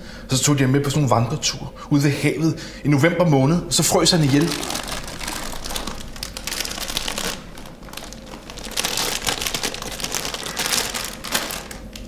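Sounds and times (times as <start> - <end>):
snack packet crinkling: 3.8 - 12.0.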